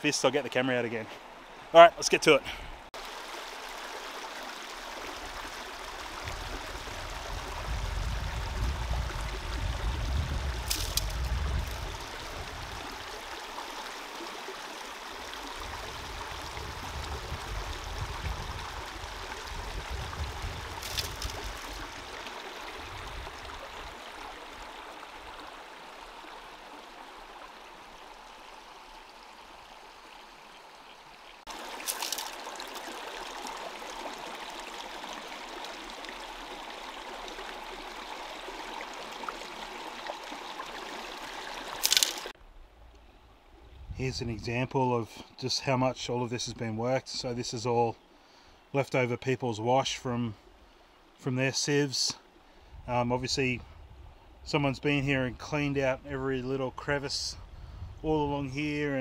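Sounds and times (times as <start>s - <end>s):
creek water running: 0.0s - 42.4s.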